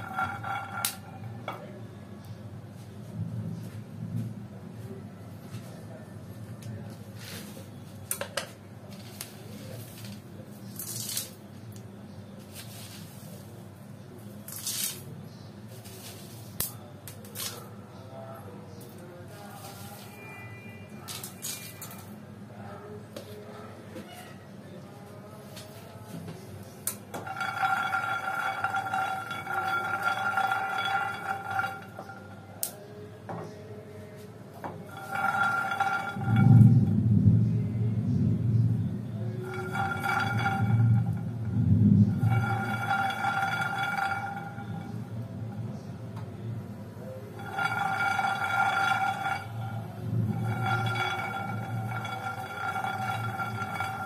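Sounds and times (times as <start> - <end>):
peanuts roasting in a frying pan: 0.0 - 1.3, 8.9 - 13.6, 15.7 - 17.6, 26.9 - 32.8, 34.9 - 36.4, 39.4 - 41.5, 42.1 - 45.5, 47.3 - 54.0
low hum: 34.8 - 54.0.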